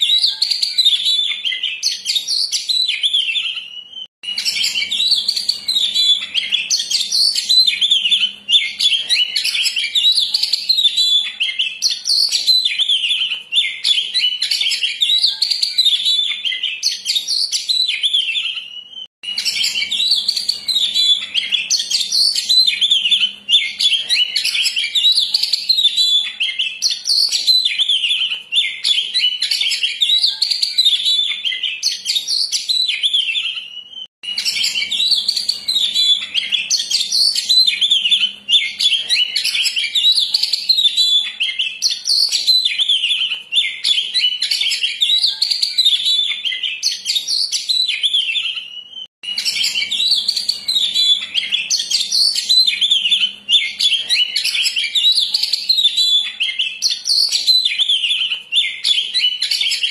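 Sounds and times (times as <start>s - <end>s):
magpie-robin singing: 0.0s - 59.9s.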